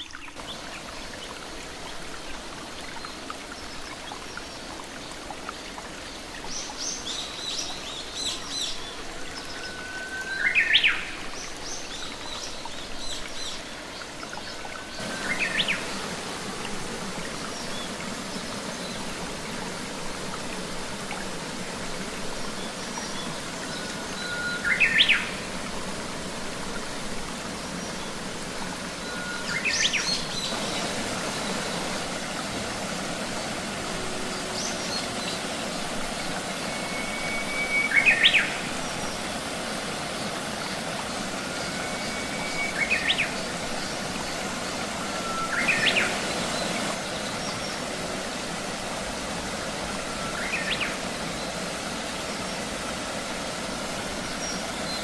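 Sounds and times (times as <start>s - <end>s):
stream splashing: 0.0s - 55.0s
bird whistling upward: 36.7s - 38.6s.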